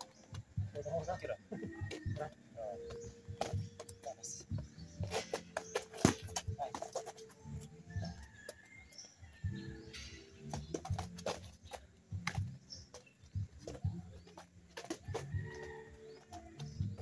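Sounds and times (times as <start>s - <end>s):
boxing gloves striking: 5.0s - 6.6s
sneakers scuffing on concrete: 10.4s - 17.0s.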